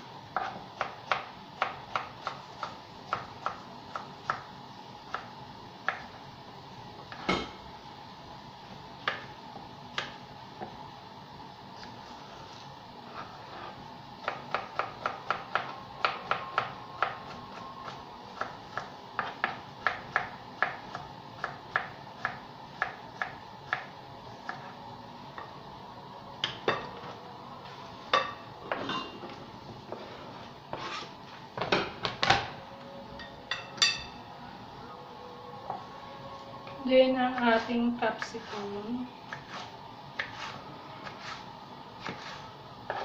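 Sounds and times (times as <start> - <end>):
knife chopping on board: 39.3 - 41.4, 42.0 - 43.0.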